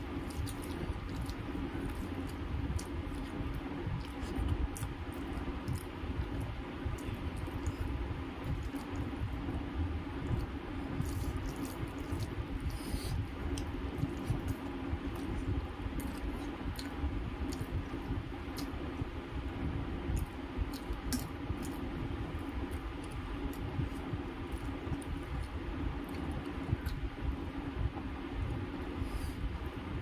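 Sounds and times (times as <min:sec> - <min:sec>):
steady low hum: 0:00.0 - 0:30.0
chewing and lip smacks: 0:00.2 - 0:09.1, 0:13.5 - 0:18.8, 0:20.1 - 0:21.8, 0:22.7 - 0:27.0.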